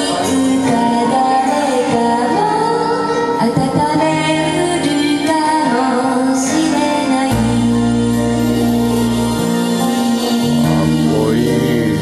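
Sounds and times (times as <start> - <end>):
woman singing: 0.0 - 10.5
karaoke backing track: 0.0 - 12.0
deep bass note: 10.5 - 12.0.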